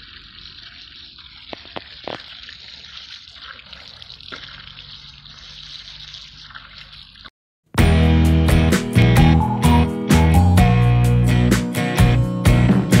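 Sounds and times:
hose water jet hissing and splashing: 0.0s - 7.3s
sharp water splats: 0.0s - 7.3s.

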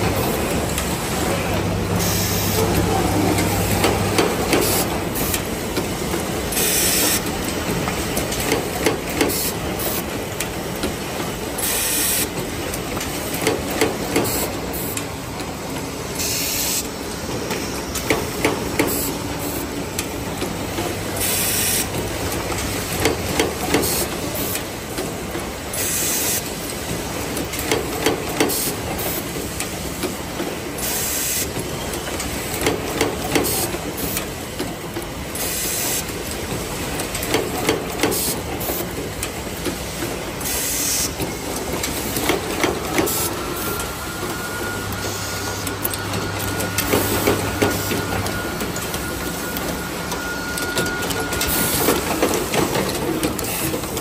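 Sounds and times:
pneumatic air hiss: 6.5s - 7.2s, 11.6s - 12.3s, 16.2s - 16.9s, 21.2s - 21.9s, 25.7s - 26.6s, 30.8s - 31.5s, 35.4s - 36.2s, 40.4s - 41.2s.

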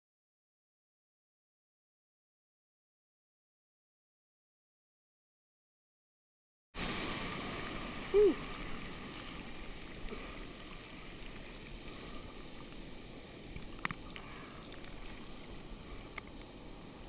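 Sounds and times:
whitewater foaming: 6.8s - 17.0s.

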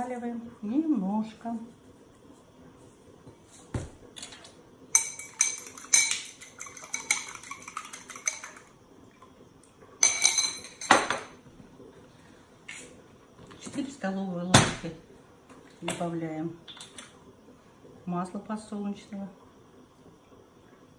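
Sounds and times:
metal spoon clinking in ceramic bowl: 5.0s - 8.7s, 10.0s - 11.3s.

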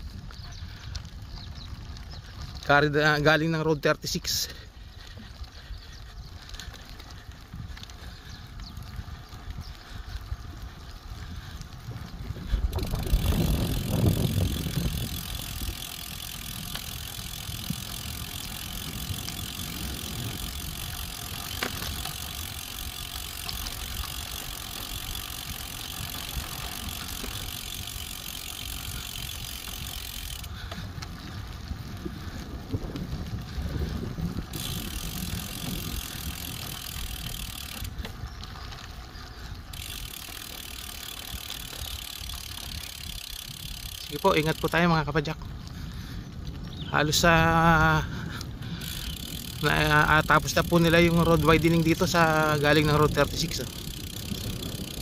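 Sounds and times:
bike rattling and ticking: 0.0s - 55.0s
bike tyres on dirt road: 0.0s - 55.0s
wind rumbling on microphone: 0.0s - 55.0s.

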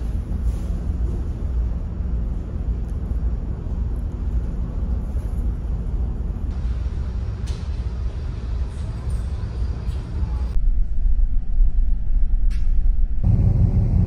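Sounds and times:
ship engines rumbling: 13.2s - 14.0s.

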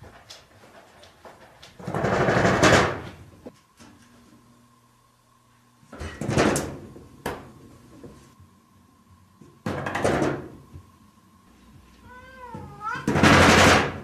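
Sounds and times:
cat meowing: 12.0s - 13.2s.

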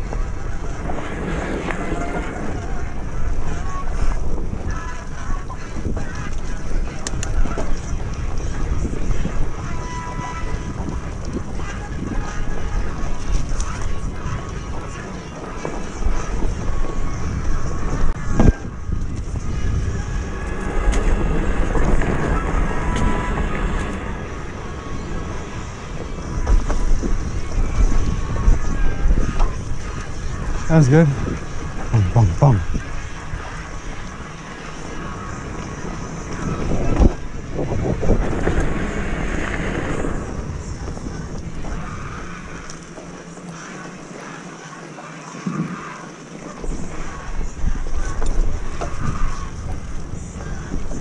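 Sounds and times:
bike rattling: 0.0s - 30.7s
bike tires rolling on dirt: 0.0s - 31.9s, 32.8s - 51.0s
wind buffeting microphone: 0.0s - 43.2s, 46.6s - 51.0s
bike rattling over bumps: 32.9s - 51.0s.

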